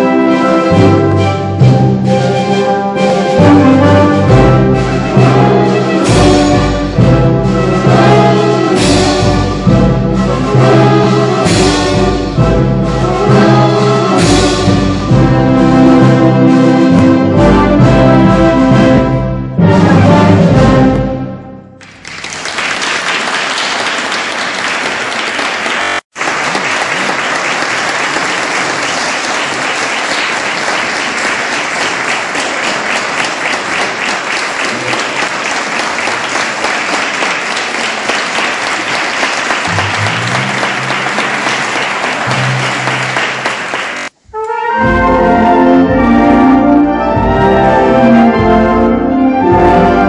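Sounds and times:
brass music: 0.0 - 21.8, 38.4 - 50.0
audience applauding: 21.8 - 44.2.

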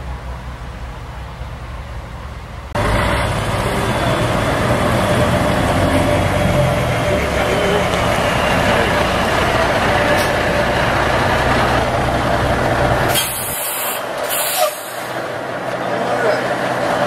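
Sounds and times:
diesel engine idling: 0.0 - 17.0
compressed air hisses: 13.1 - 15.1.

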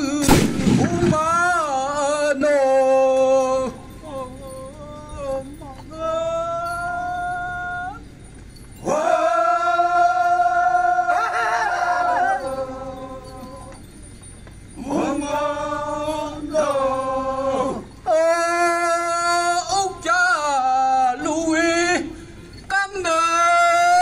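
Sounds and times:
men singing a chant: 0.0 - 8.1, 8.8 - 14.0, 14.7 - 24.0.

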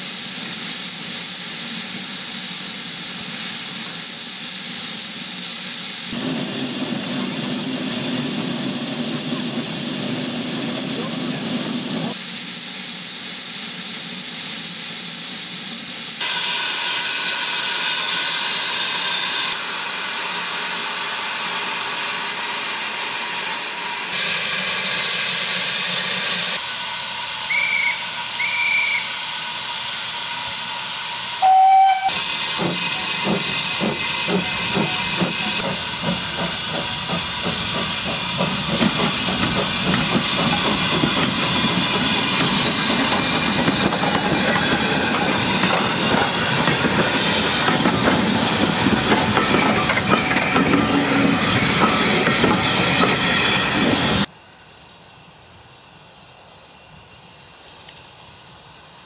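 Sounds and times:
steam hissing: 0.0 - 54.3
low steam whistle blast: 26.6 - 32.2
steam whistle toots: 26.6 - 32.2.

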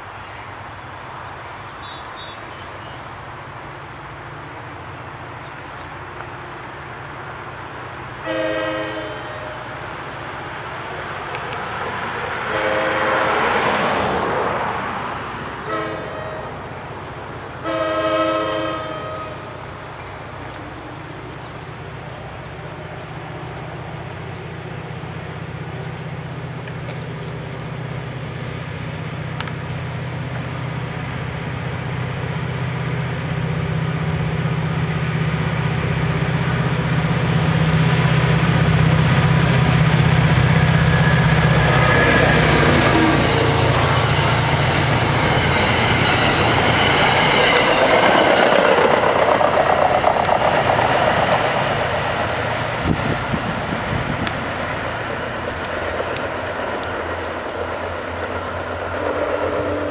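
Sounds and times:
locomotive horn blasts: 8.2 - 9.7, 12.4 - 13.5, 15.6 - 16.6, 17.6 - 19.4, 40.8 - 44.5.

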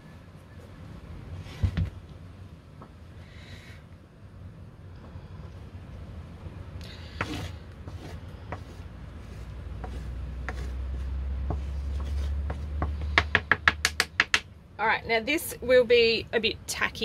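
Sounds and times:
spoon tapping and scraping board: 7.2 - 14.4.

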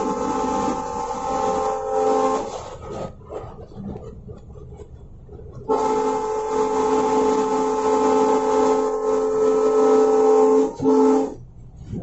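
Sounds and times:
locomotive horn chord: 0.0 - 2.7, 5.7 - 11.4
train running noise: 0.0 - 12.0.

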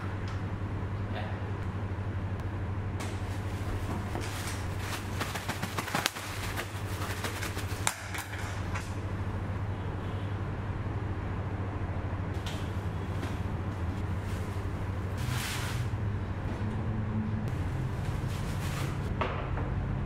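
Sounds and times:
steady low hum: 0.0 - 20.0
bubble wrap crinkling: 3.3 - 7.9.

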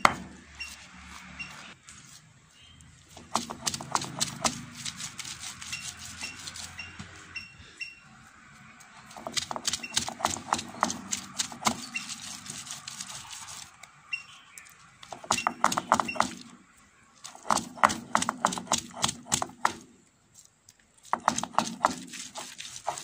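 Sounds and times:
stone roller grinding on stone: 3.2 - 7.3, 9.0 - 13.8, 15.1 - 16.6, 17.2 - 19.8, 21.1 - 23.0.

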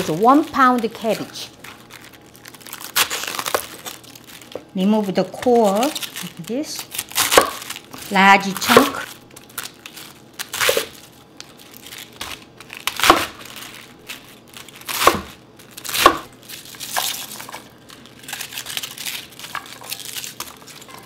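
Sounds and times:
cabbage leaves rustling: 0.0 - 15.1
knife crunching through cabbage: 0.0 - 21.0.

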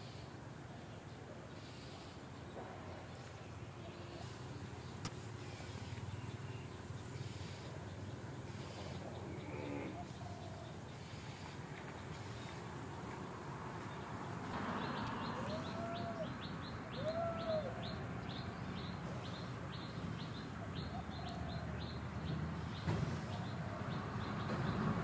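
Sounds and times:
lower arched bird calls: 3.7 - 13.0, 14.0 - 24.5.

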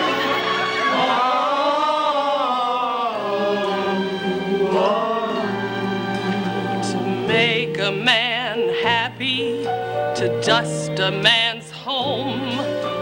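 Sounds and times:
men's chorus singing: 0.0 - 9.6.

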